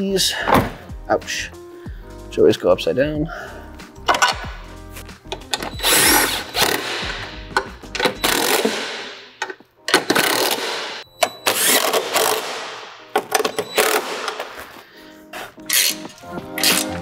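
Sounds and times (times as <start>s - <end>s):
background music: 0.0s - 17.0s.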